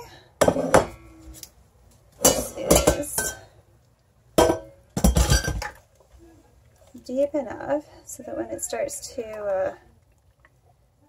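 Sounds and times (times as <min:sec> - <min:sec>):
utensils clinking on steel pot: 0:02.2 - 0:03.6, 0:04.4 - 0:05.8.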